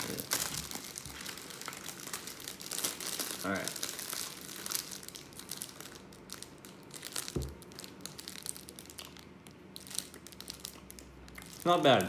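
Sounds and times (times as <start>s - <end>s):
plastic wrapper crinkling: 0.0s - 12.0s
person chewing: 8.0s - 11.6s.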